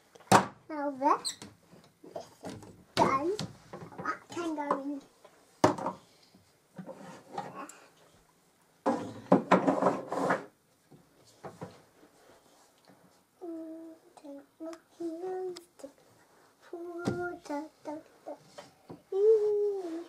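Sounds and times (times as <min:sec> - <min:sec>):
wood scraping: 0:08.9 - 0:10.5.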